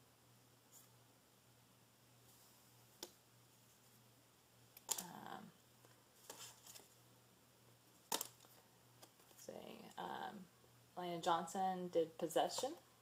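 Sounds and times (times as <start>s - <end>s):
faint steady hum: 0.0s - 13.0s
card clicks and rustles: 8.0s - 9.4s.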